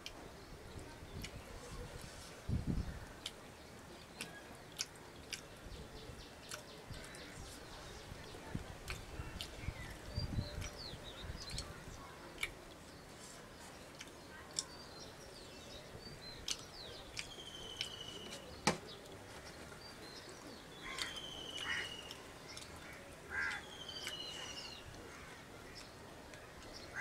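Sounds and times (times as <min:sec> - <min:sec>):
crows cawing: 0:20.8 - 0:22.0, 0:22.9 - 0:23.7.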